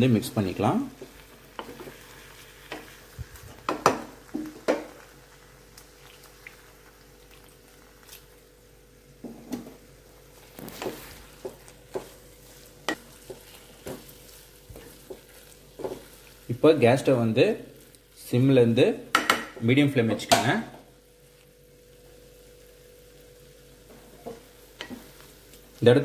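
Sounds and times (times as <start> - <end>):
faint sizzle: 0.0 - 26.0
spatula scraping a pan: 10.4 - 16.4.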